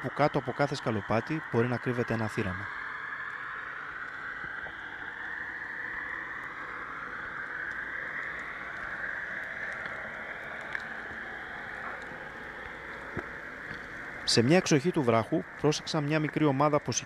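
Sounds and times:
faint underwater clicks: 6.3s - 17.0s.

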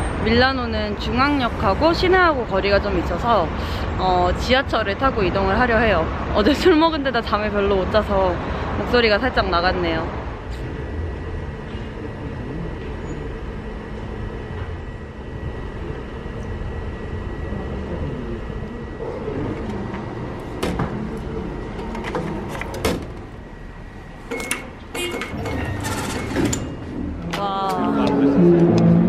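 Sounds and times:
low rumble and hum: 0.0s - 29.0s.

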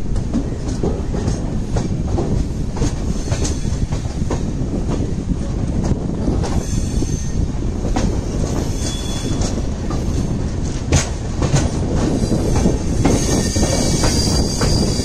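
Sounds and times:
rumble of wheels on rail: 0.0s - 15.0s
wheels clacking over rail joints: 7.8s - 15.0s.

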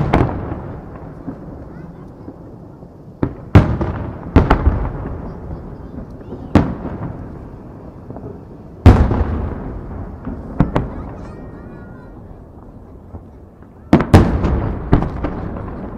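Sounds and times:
firework shells booming: 0.0s - 15.9s.

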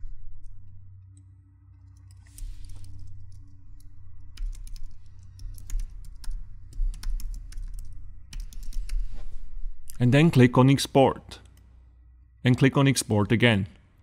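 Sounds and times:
computer keyboard typing: 1.9s - 9.2s.

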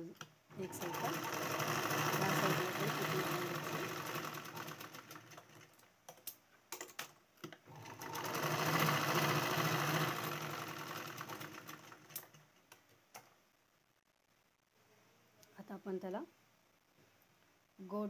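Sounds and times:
sewing machine clicks: 0.2s - 13.3s
sewing machine stitching: 0.5s - 5.8s, 6.8s - 12.5s.

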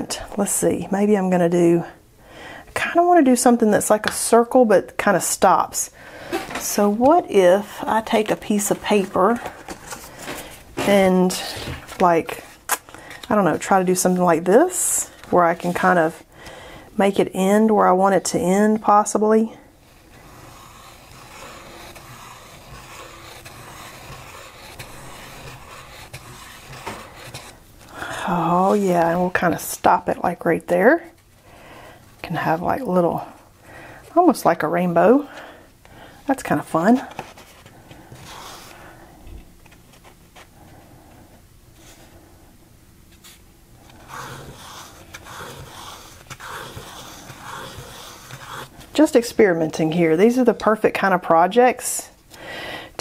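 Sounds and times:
pen scratching on paper: 19.8s - 29.6s, 38.0s - 38.8s, 43.9s - 48.9s.

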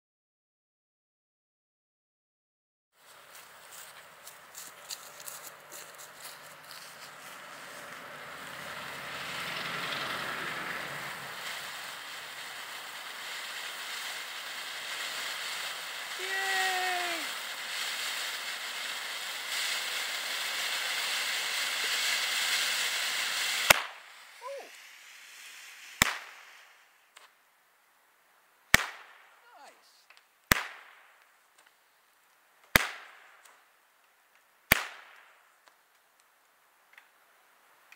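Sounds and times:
firework fountain hissing: 3.0s - 27.5s, 28.7s - 31.7s, 32.6s - 33.5s
firework pop: 25.9s - 26.5s.

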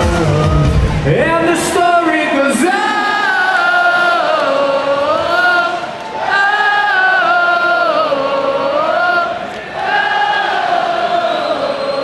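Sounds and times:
crowd chanting in unison: 2.4s - 12.0s.

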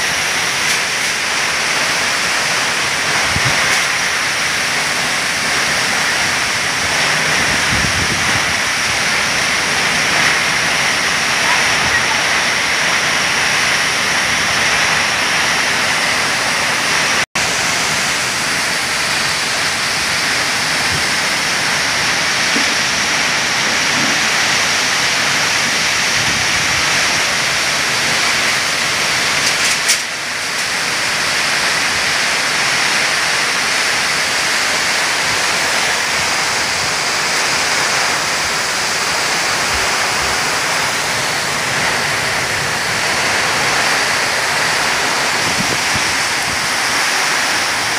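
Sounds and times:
gusting wind: 0.0s - 47.9s
torrential rain: 0.0s - 47.9s.

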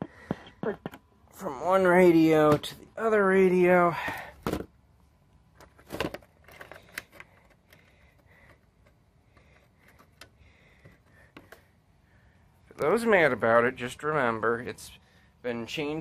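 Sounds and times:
portable radio being handled: 4.0s - 11.7s.

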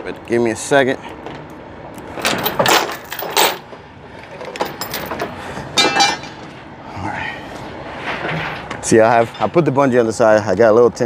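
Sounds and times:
metal chain knocking and clattering: 2.2s - 3.6s, 4.4s - 5.3s
ringing metallic clank: 5.8s - 6.4s.

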